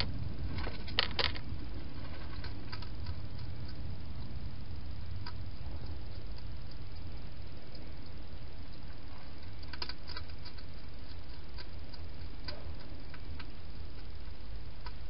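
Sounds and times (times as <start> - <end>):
hedgehog eating clicks and crunches: 0.0 - 4.4, 5.0 - 15.0
steady low hum: 0.0 - 15.0.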